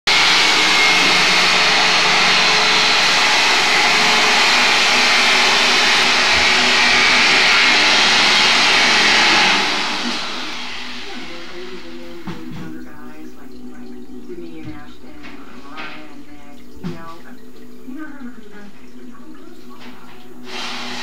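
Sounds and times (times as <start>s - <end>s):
mechanical whir with whine: 0.1s - 13.2s, 20.4s - 21.0s.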